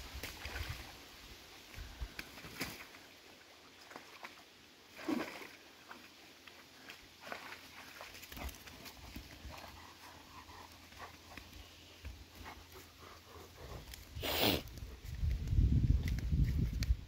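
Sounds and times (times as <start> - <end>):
small splashes: 0.1 - 1.0, 1.7 - 9.6
dogs panting: 8.4 - 15.2.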